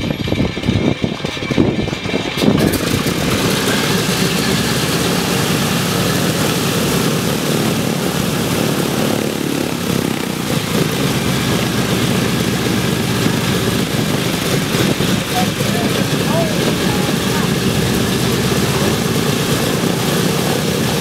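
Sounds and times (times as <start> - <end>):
radial engine running: 0.0 - 21.0.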